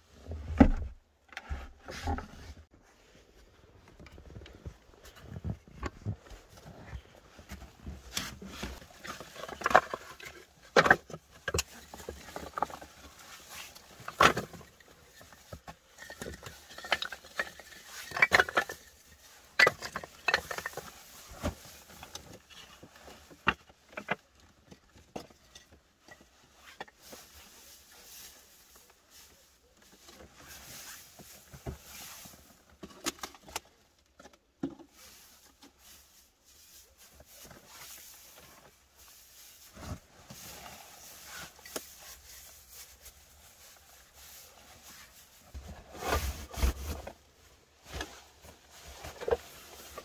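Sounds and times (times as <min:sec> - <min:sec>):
rustling of dry pine needles: 0:35.0 - 0:47.1.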